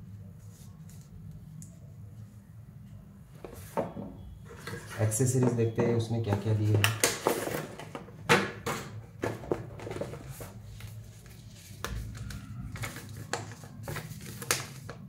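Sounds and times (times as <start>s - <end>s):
packaging being opened: 9.8s - 15.0s.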